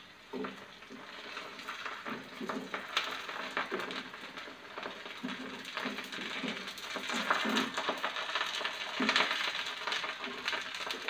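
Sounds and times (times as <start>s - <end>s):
hot oil sizzling: 0.0s - 11.0s.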